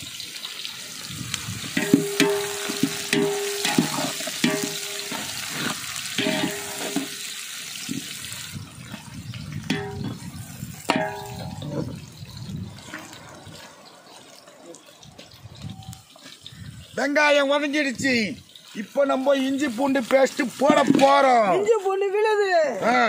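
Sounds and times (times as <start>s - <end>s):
onions sizzling in hot oil: 0.0s - 23.0s
metal ladle scraping a pot: 1.8s - 7.3s, 9.7s - 10.2s, 10.9s - 11.8s.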